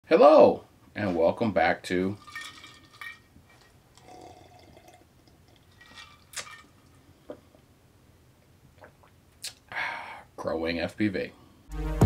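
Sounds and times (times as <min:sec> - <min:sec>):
person sipping and swallowing: 0:04.0 - 0:06.7, 0:08.8 - 0:09.7.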